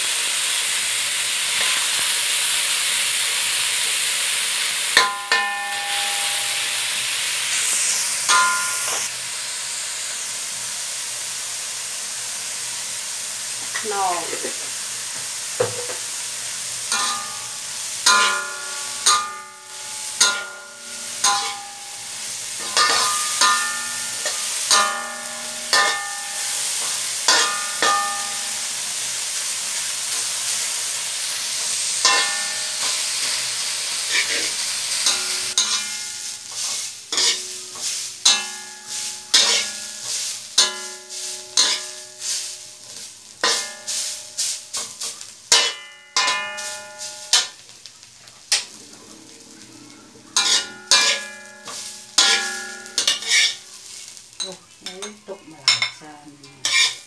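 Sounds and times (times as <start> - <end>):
food sizzling in a wok: 0.0 - 57.0
metal spatula striking wok: 5.0 - 6.9, 8.2 - 9.1, 16.9 - 28.8, 32.0 - 33.5, 35.0 - 42.4, 43.3 - 47.7, 50.3 - 53.6.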